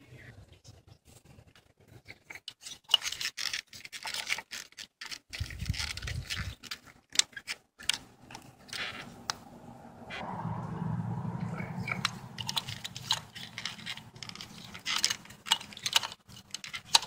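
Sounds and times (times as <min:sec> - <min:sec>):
steady low hum: 0:09.0 - 0:15.4.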